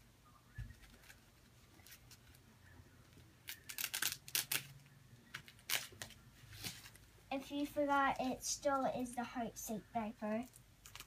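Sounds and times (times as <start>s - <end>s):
diaper tabs rustling and ripping: 3.4s - 4.8s, 5.4s - 6.9s, 10.5s - 11.0s.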